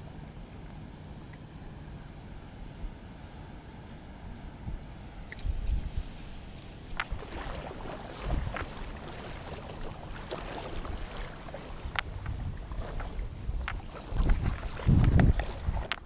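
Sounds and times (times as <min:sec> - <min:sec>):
wind rumbling on microphone: 0:02.0 - 0:16.0
river water lapping and splashing: 0:05.0 - 0:16.0.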